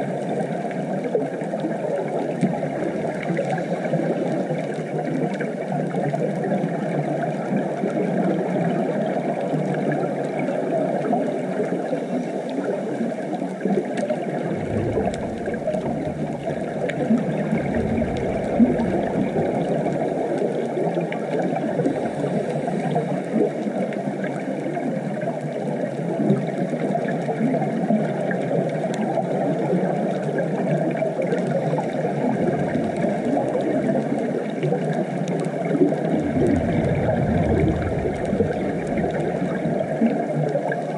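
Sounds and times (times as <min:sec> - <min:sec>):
underwater hiss-like wash: 0:14.2 - 0:20.5, 0:35.9 - 0:39.9
low rumble: 0:14.3 - 0:20.2, 0:36.0 - 0:39.9.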